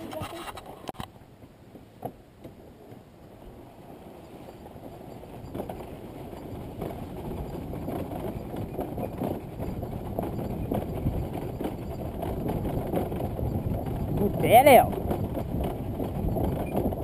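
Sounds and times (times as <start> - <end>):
dirt bike rumble: 4.5 - 17.0
dirt bike knocks and rattles: 5.4 - 17.0.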